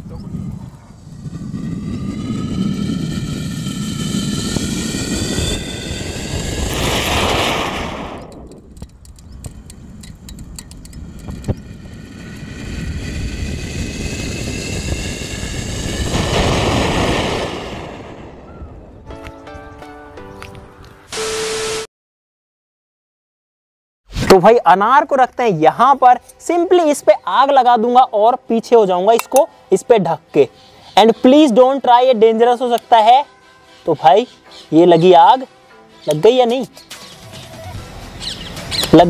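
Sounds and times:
firework crackling: 1.0 - 8.8, 11.1 - 18.5.

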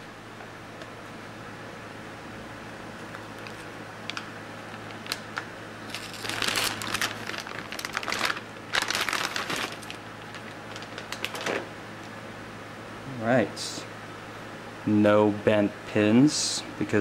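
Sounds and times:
plastic bag crinkling: 4.8 - 11.7.

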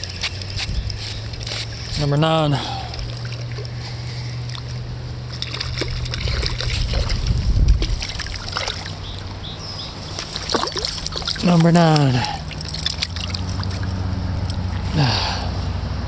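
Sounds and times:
splashing in water: 0.0 - 15.4
river rushing: 7.9 - 15.6.

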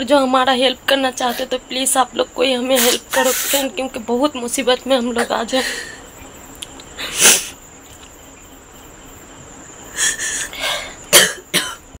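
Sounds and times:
faint high-pitched whine: 0.0 - 12.0
person sniffing: 2.8 - 3.6, 7.0 - 7.6.

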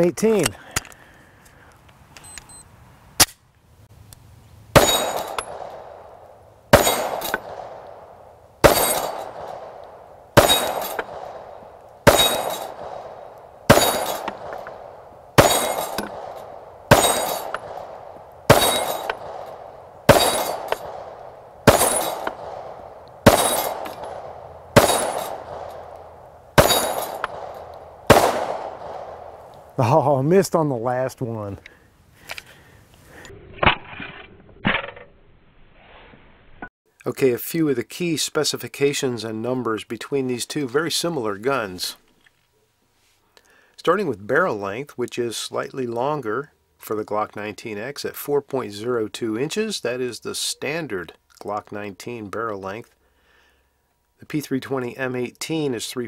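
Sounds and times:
steel target ringing: 4.8 - 5.9, 6.8 - 7.8, 8.6 - 9.7, 10.4 - 14.8, 15.4 - 29.4
pistol shots: 4.8 - 29.6.

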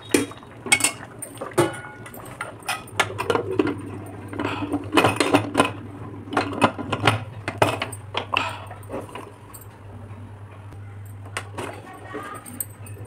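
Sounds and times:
metal pot lid clinking on rim: 0.2 - 3.3.

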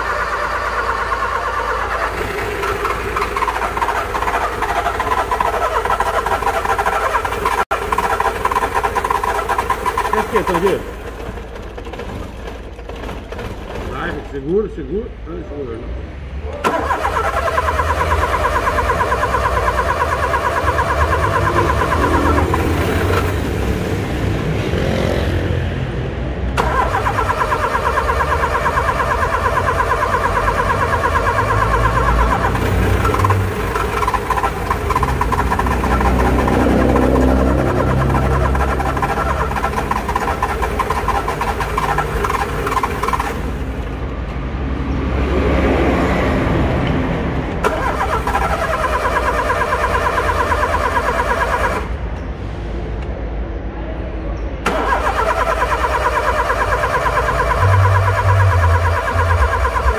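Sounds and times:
car starter clicking: 16.6 - 23.4, 26.6 - 36.6, 37.8 - 43.5, 47.6 - 51.9, 54.7 - 59.9.

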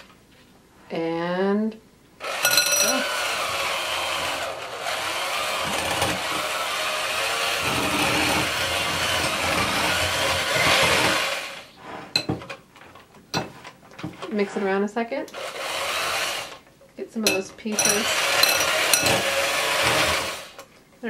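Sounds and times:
electric hand mixer running: 2.2 - 11.7, 15.4 - 16.6, 17.7 - 20.6.

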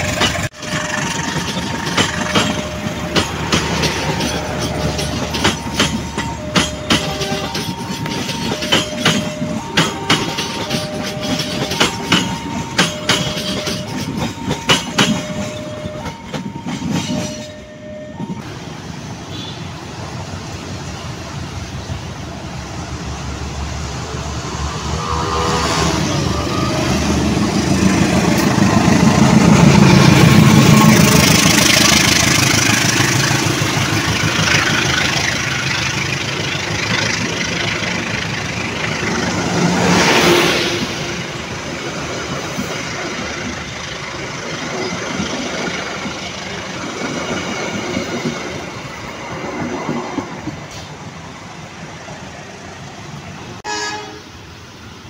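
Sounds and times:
train wheels clicking over rail joints: 0.0 - 18.5, 26.8 - 51.0
diesel locomotive engine: 0.0 - 55.0
level-crossing alarm two tones: 0.2 - 18.5
diesel locomotive horn: 19.3 - 19.8, 24.4 - 27.5, 28.1 - 33.8, 39.1 - 41.4, 53.6 - 54.4.

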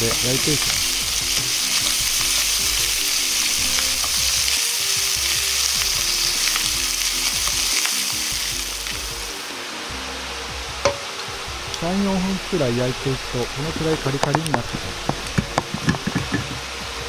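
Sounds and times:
chicken skin sizzling in a pan: 0.0 - 10.0, 10.8 - 17.0.

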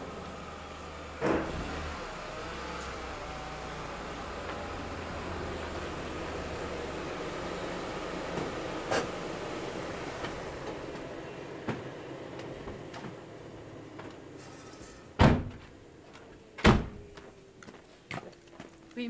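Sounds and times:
car doors shutting: 1.2 - 2.1, 13.9 - 17.1.

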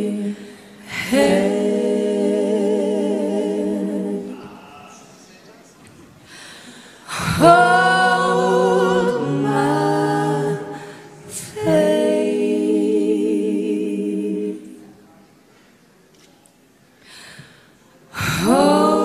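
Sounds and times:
women singing a cappella harmony: 0.0 - 4.6, 6.7 - 14.9, 18.1 - 19.0.

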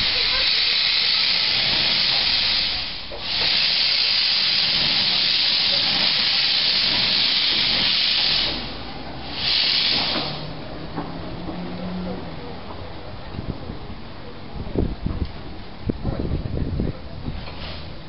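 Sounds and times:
steam locomotive hissing steam: 0.0 - 11.0, 17.4 - 18.0.

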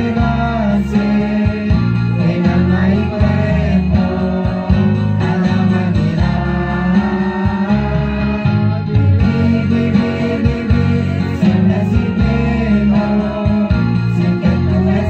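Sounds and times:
guitar accompaniment: 0.0 - 15.0
mixed voices singing a hymn: 0.0 - 15.0.

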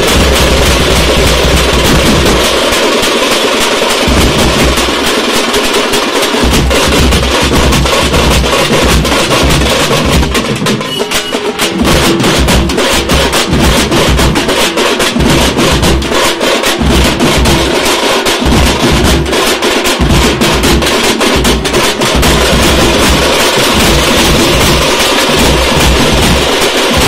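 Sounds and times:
bass drums booming: 0.0 - 2.4, 20.0 - 27.0
rapid strokes on smaller drums: 0.0 - 27.0.

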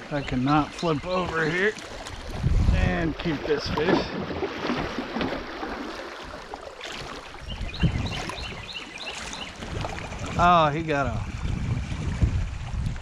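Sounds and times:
water rushing and splashing: 0.0 - 13.0.

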